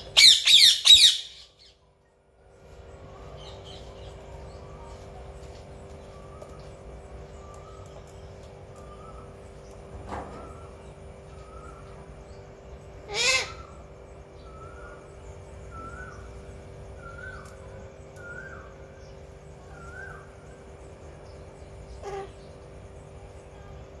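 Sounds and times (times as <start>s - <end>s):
soft repeated parakeet calls: 0.0s - 1.8s, 10.4s - 16.4s, 21.2s - 22.7s
parakeet squawking: 0.1s - 1.6s, 13.1s - 13.8s.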